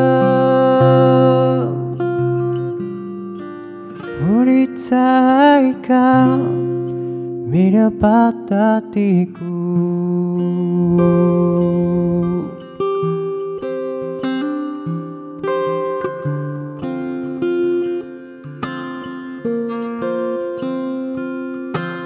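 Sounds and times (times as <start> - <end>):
man singing: 0.0 - 2.1, 4.0 - 13.0
acoustic guitar: 0.0 - 22.0.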